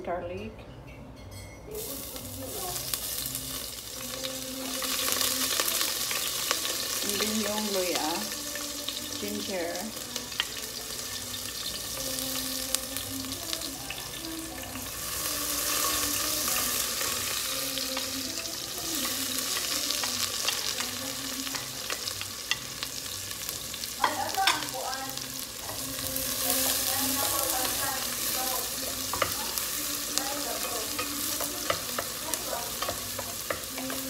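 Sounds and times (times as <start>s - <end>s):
vegetables sizzling in oil: 1.7s - 34.0s.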